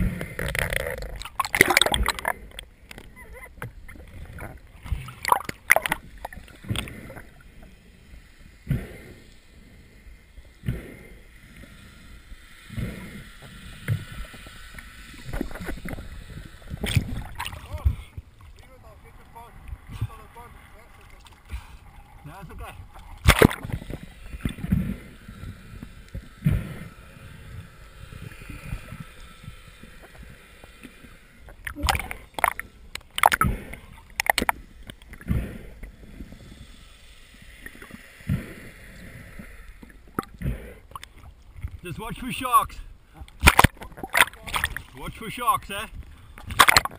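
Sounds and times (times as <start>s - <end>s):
low water rumble: 0.0s - 46.9s
underwater hiss: 6.0s - 18.2s, 23.2s - 41.3s.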